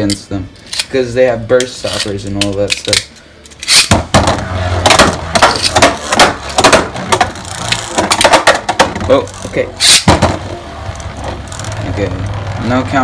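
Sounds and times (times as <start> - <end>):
ripcord launchers ratcheting: 0.0 - 4.0, 5.4 - 10.1.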